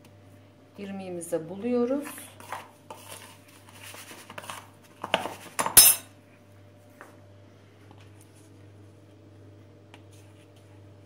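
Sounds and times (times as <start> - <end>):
spoon scraping plastic bowl: 2.0 - 5.6.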